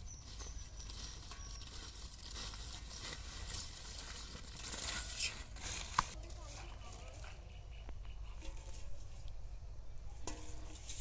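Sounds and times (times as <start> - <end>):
footsteps rustling through leaves: 0.0 - 7.4.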